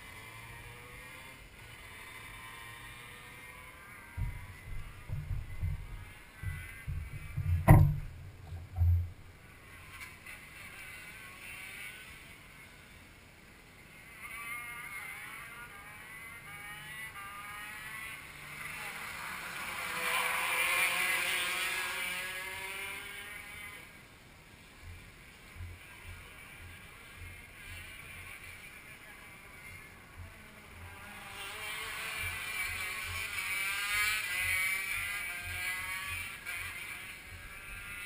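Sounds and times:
go-kart engines running: 0.0s - 38.0s
go-kart passing by: 0.0s - 38.0s
knocks from handling kart: 4.2s - 9.3s.

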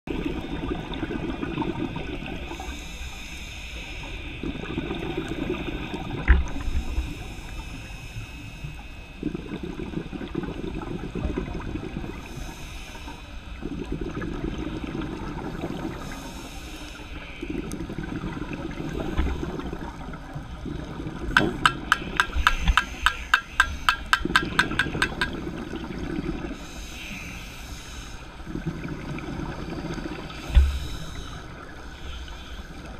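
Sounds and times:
regulator inhale hiss: 2.4s - 4.7s, 5.5s - 9.3s, 12.1s - 13.6s, 15.9s - 17.8s, 22.0s - 24.2s, 26.5s - 28.5s, 30.2s - 32.9s
exhaled air bubbling: 4.1s - 26.9s.

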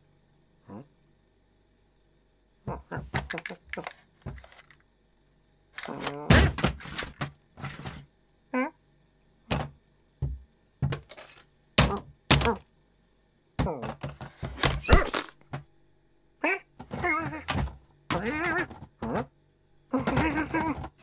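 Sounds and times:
cartoon thuds and knocks: 6.1s - 7.3s, 9.5s - 11.1s, 11.8s - 12.6s, 13.6s - 15.6s, 16.8s - 19.3s, 20.0s - 21.0s.

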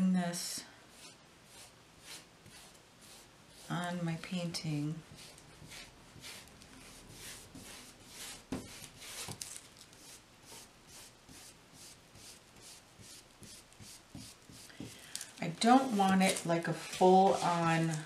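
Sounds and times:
paintbrush scrubbing on canvas: 0.9s - 4.3s, 5.1s - 9.4s, 10.0s - 14.9s, 15.6s - 18.0s.

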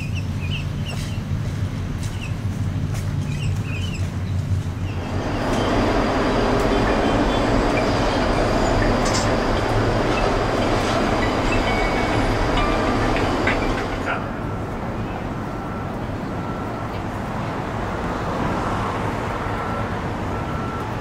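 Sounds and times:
cable car running noise: 0.0s - 21.0s
low hum: 1.5s - 16.6s.

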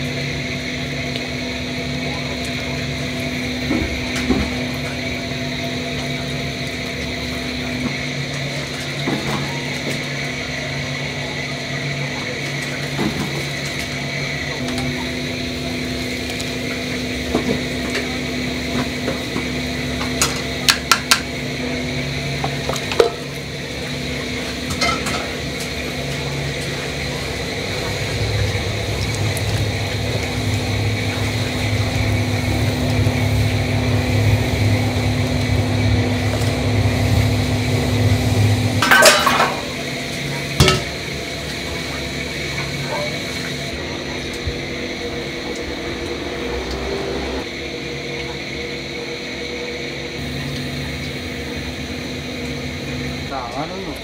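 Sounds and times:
steady kitchen hum: 0.0s - 54.0s
utensils clinking on steel pot: 24.7s - 25.3s, 38.8s - 39.8s.

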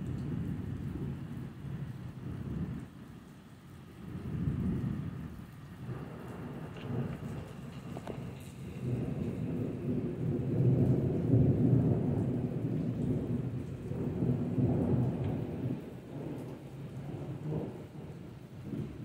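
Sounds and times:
rain falling: 0.0s - 19.0s
rolling thunder: 4.0s - 19.0s.

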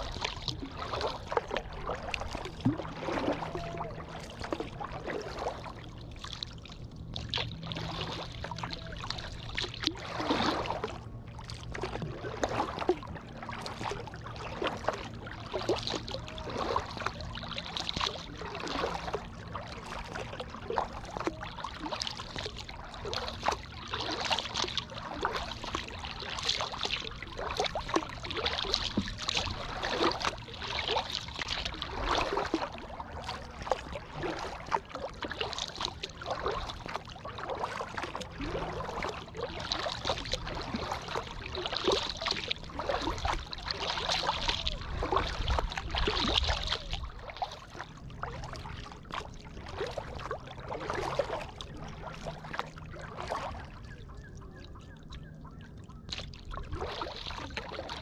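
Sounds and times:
water dripping off paddle: 0.0s - 6.5s, 7.1s - 53.8s
paddle strokes through water: 0.0s - 58.0s.

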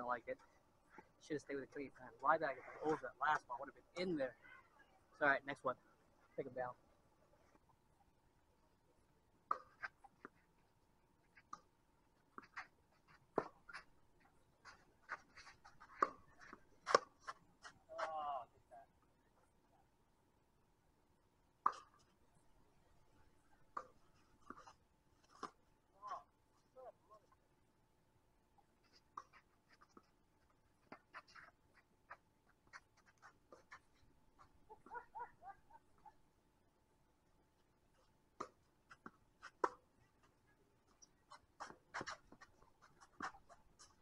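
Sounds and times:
tennis ball bouncing: 38.4s - 39.8s.

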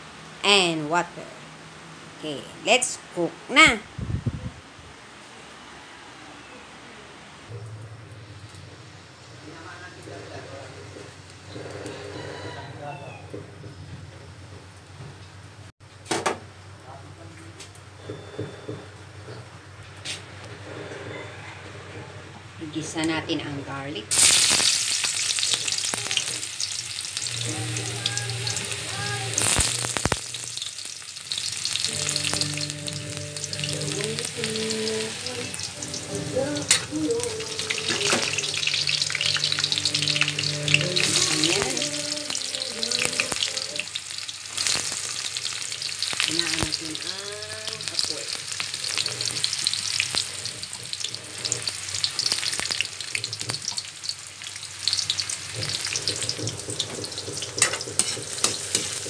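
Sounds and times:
garlic sizzling in oil: 24.1s - 59.0s.

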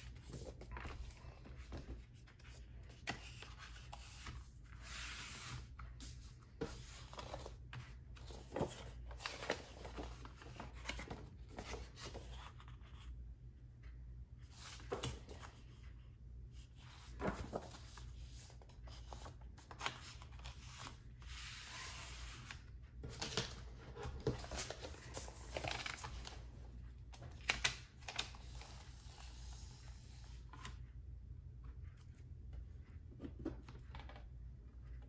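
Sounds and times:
cardboard and paper rustling: 0.0s - 13.0s, 16.8s - 29.6s.

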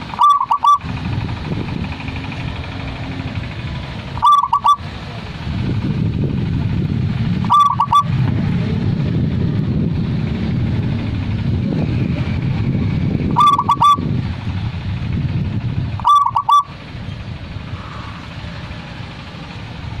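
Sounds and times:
dove cooing: 0.0s - 0.9s, 4.1s - 4.8s, 7.4s - 8.2s, 13.3s - 14.1s, 16.0s - 16.7s
low background rumble: 0.0s - 20.0s.

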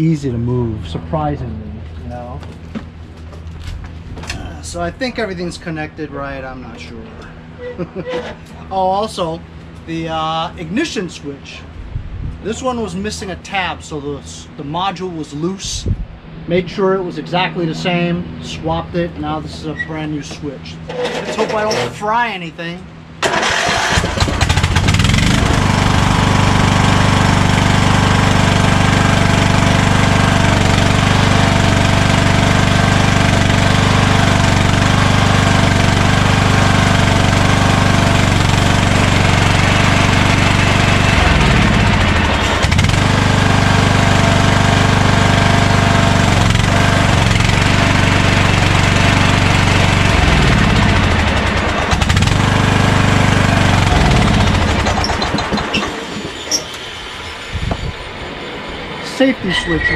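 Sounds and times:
lawn tractor engine starting and running: 20.8s - 22.1s, 23.2s - 56.8s.

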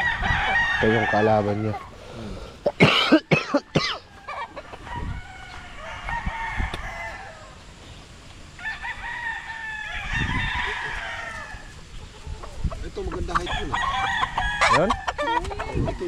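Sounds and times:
roosters crowing: 0.0s - 16.0s.

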